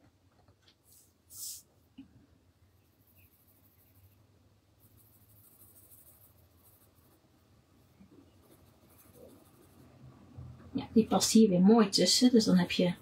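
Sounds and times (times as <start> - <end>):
pencil scratching on paper: 2.8 - 7.3, 8.3 - 10.0.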